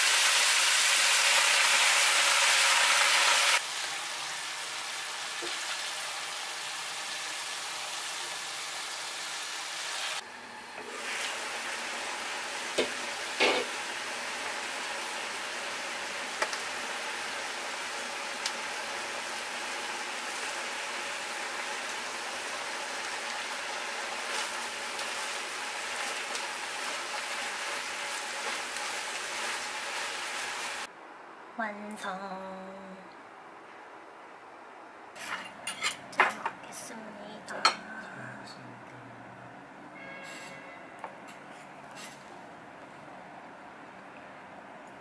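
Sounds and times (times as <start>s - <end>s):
vegetables sizzling in a wok: 0.0s - 30.9s.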